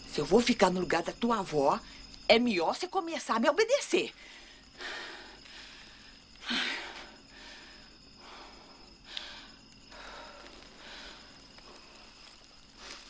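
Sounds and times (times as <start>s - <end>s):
person breathing: 4.2s - 13.0s.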